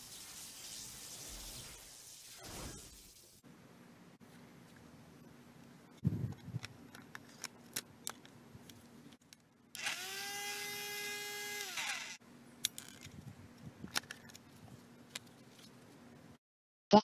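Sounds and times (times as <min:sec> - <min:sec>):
grass trimmer motor whining: 0:09.8 - 0:12.2.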